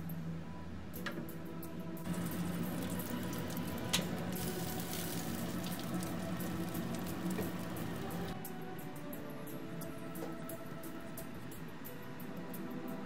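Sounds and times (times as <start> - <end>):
oven humming: 0.4 - 13.0
pork crackling and sizzling: 2.0 - 8.4.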